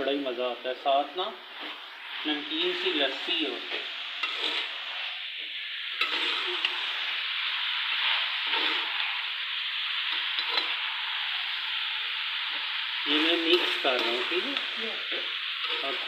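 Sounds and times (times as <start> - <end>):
meat frying in a pan: 0.0 - 16.0
spatula scraping and stirring: 1.5 - 5.4, 6.0 - 7.1, 7.9 - 9.2, 10.1 - 10.8, 12.4 - 16.0.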